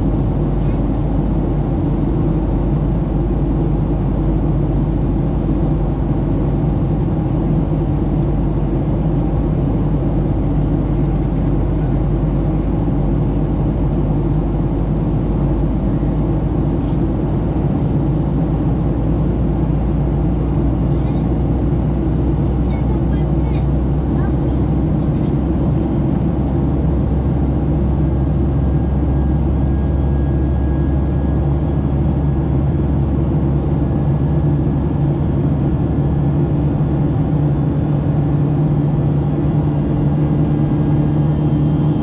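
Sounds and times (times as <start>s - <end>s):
jet engines droning: 0.0s - 42.0s
airflow: 14.2s - 17.8s.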